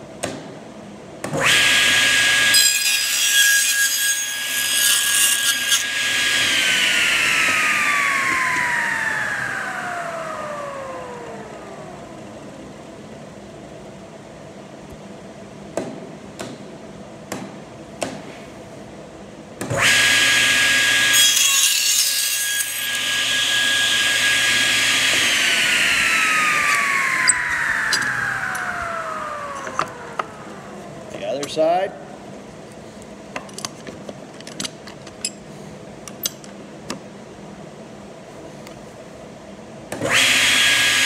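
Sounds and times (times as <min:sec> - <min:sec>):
table saw whine: 0:01.4 - 0:12.4, 0:19.7 - 0:31.2, 0:40.0 - 0:41.0.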